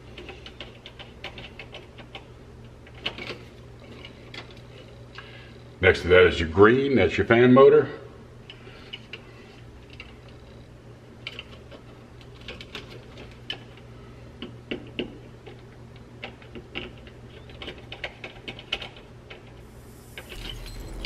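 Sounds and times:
steady low hum: 19.5 - 21.0.

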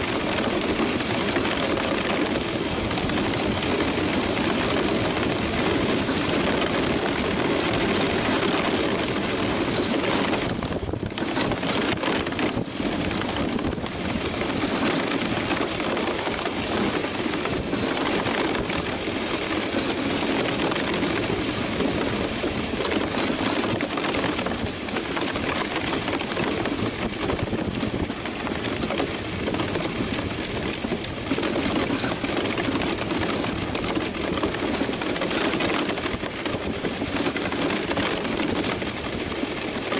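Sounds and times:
runners sliding on ice: 0.0 - 39.9
wind on camera: 0.0 - 39.9.

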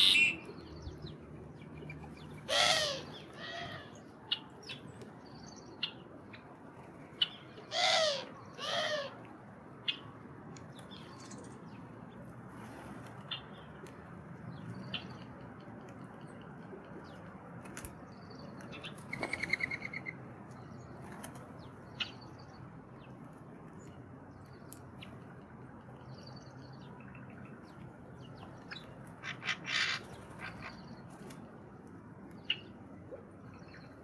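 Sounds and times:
high bird call notes: 0.0 - 0.6.

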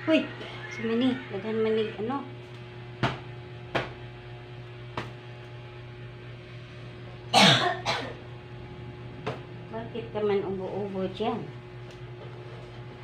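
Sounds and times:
steady low hum: 0.0 - 13.0
person coughing: 7.3 - 8.2.

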